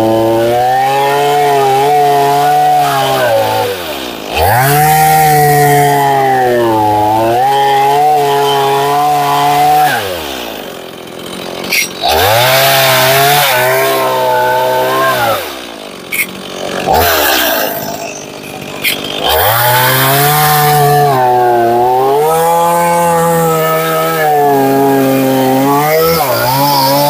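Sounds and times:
chainsaw cutting log: 0.0 - 27.0.

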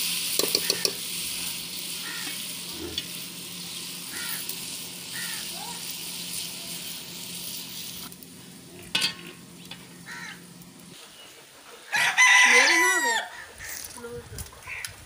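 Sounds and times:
food sizzling in a pot: 0.0 - 11.0
rooster crowing: 11.9 - 13.5.

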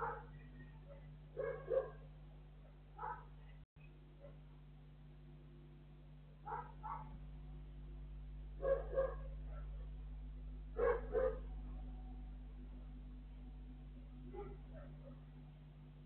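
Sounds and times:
dog barking: 0.0 - 3.4, 4.2 - 4.4, 6.5 - 7.2, 8.6 - 10.0, 10.8 - 11.8, 14.3 - 15.3
steady low hum: 0.0 - 16.0.

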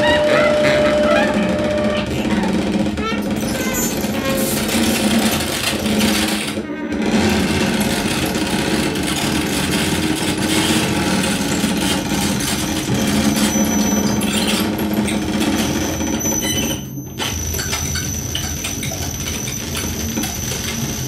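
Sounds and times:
thin high tone: 0.0 - 2.1
noisy electronic texture: 0.0 - 10.3.

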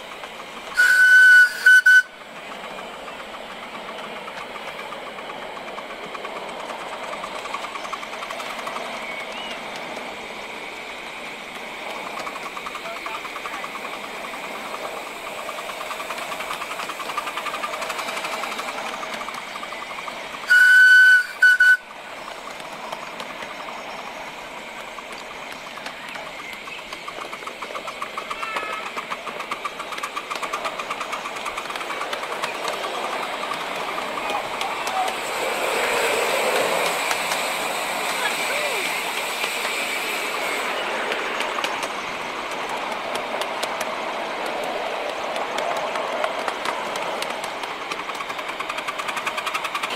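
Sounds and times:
miniature train running on track: 0.0 - 49.9
train whistle: 0.7 - 2.2, 20.4 - 21.9.

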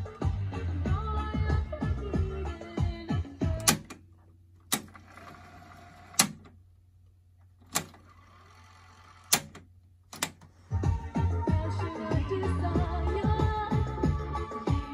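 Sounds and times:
music from tape playback: 0.0 - 6.4, 10.3 - 14.9
cassette deck buttons clunking: 3.5 - 5.0, 9.3 - 10.5.

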